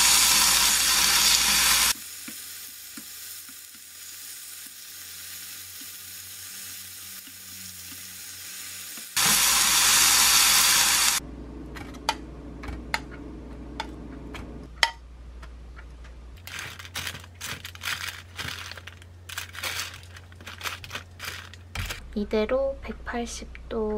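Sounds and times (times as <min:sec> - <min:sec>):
loud hiss: 0:00.0 - 0:02.0, 0:08.2 - 0:11.2
meat sizzling in a frying pan: 0:00.0 - 0:11.2.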